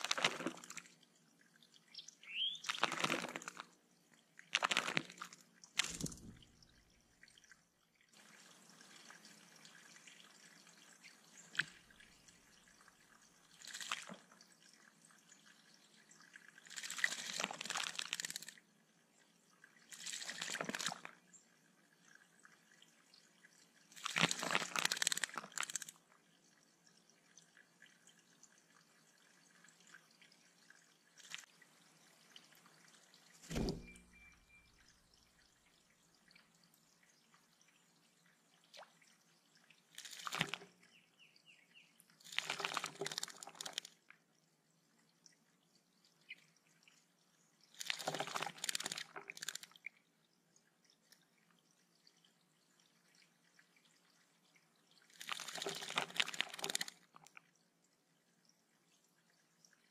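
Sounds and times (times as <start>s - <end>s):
bird splashing in water: 0.0s - 0.9s, 2.3s - 3.7s, 4.5s - 6.7s, 13.6s - 14.2s, 16.6s - 18.6s, 24.0s - 26.0s, 33.4s - 34.3s, 40.0s - 40.7s, 42.2s - 43.9s, 47.8s - 49.7s, 55.2s - 57.0s
trickle of flowing water: 0.0s - 59.9s.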